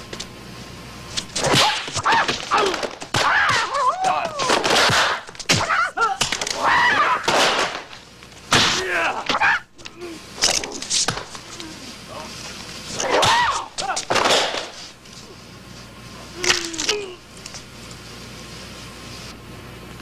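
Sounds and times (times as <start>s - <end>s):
shrieking kiai cries: 2.0s - 4.7s, 5.6s - 7.3s.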